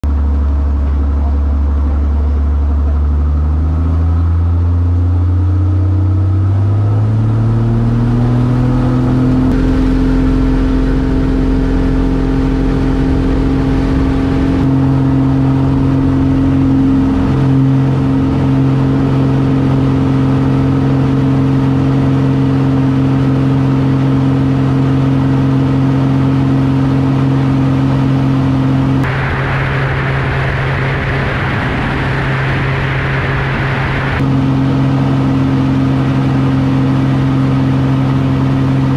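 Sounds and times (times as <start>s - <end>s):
aircraft engine and propeller droning: 0.0s - 38.9s.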